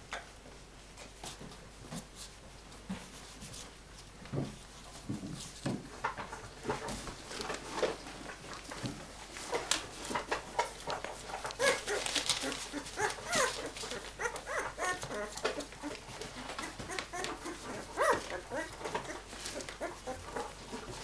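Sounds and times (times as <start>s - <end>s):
puppies scrabbling and knocking: 4.3s - 21.0s
puppies whimpering and squeaking: 9.4s - 21.0s.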